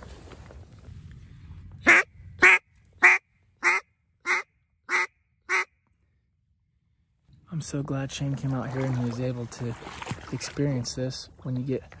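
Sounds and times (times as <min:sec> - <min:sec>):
duck call quacks: 0:01.8 - 0:05.7.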